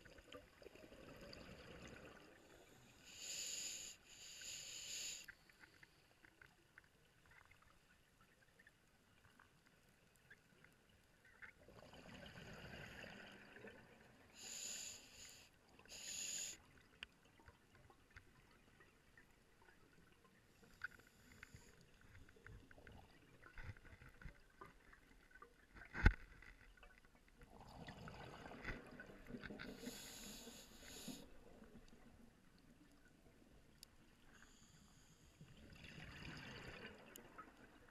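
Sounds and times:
regulator hissing inhalations: 3.0 - 5.3, 14.4 - 16.6, 29.7 - 31.3.

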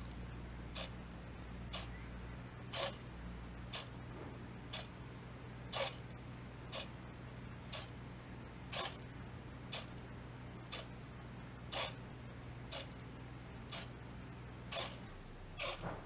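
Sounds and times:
servo motors whirring: 2.7 - 3.0, 5.7 - 6.0, 8.7 - 9.0, 11.7 - 12.0, 14.7 - 16.0.

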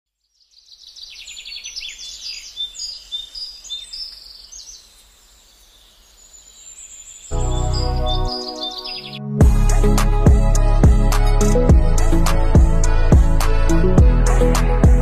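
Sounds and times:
small birds chirping: 0.1 - 9.3.

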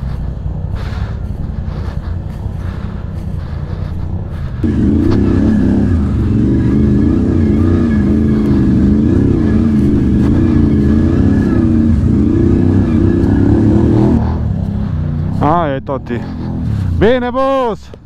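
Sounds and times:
quad bike engine revving: 0.0 - 17.6.

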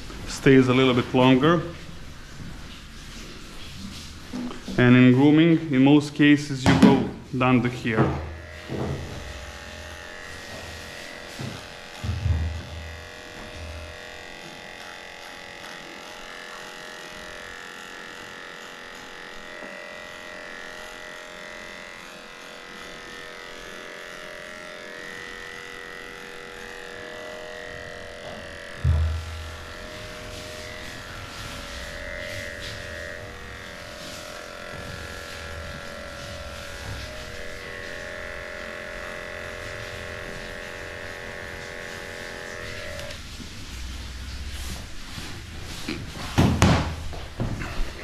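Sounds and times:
dog clipper running: 0.0 - 48.0
low thumps: 28.8 - 31.2.

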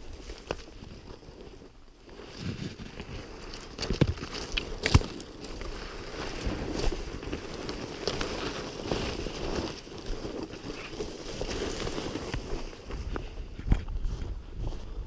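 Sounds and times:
dry reeds and twigs rustling: 0.0 - 15.0
twig snapping: 3.4 - 5.7.

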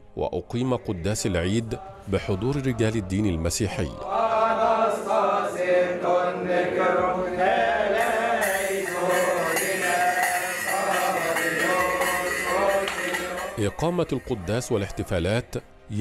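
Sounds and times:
men chanting a hymn: 0.5 - 16.0
bright high shimmer: 8.0 - 14.9.

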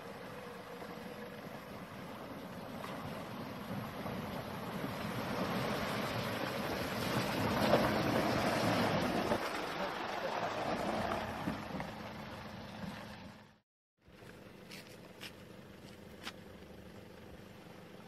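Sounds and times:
water splashing from tyres: 0.1 - 13.4
truck engine running: 3.7 - 18.0.

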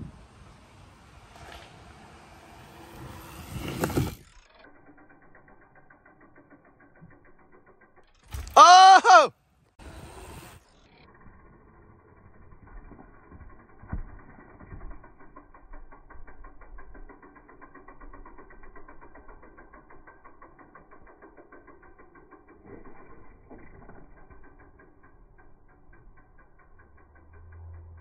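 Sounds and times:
bicycle freewheel ticking: 0.8 - 28.0.

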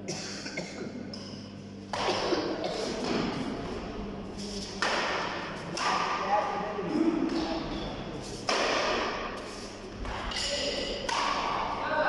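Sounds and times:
steady low hum: 0.0 - 12.0
racket and shuttlecock taps: 4.8 - 6.2, 8.5 - 9.2, 10.0 - 11.7.

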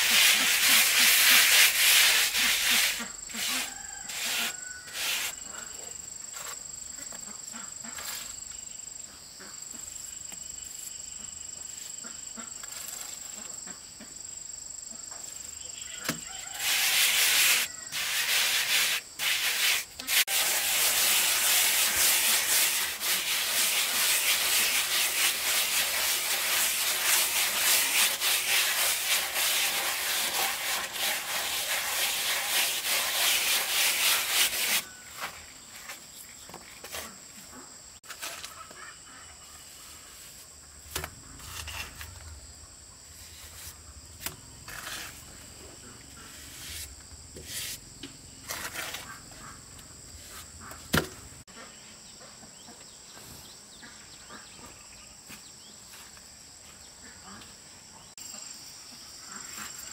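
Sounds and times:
tool scraping a hard surface: 0.0 - 5.4, 16.4 - 35.4, 41.3 - 42.1, 44.7 - 45.4, 48.5 - 49.5
faint high cricket-like trill: 3.1 - 16.6.

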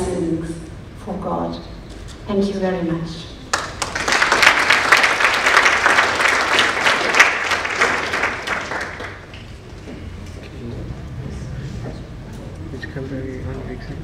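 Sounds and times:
audience applauding: 3.5 - 9.7.

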